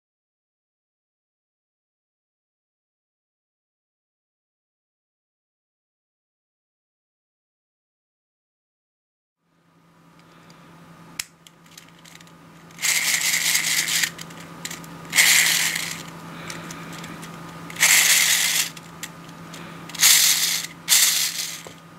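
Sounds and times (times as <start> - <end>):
plastic gears whirring: 11.6 - 21.8.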